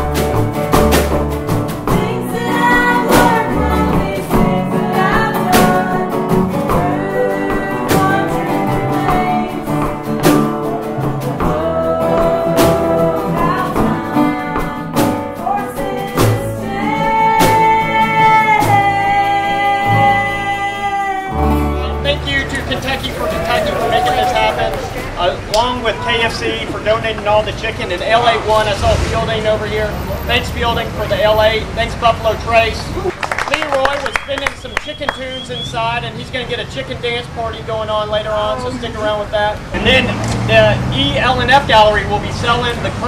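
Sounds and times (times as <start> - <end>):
bluegrass string band: 0.0 - 33.1, 34.6 - 43.0
woman singing: 1.8 - 10.1, 10.7 - 21.6.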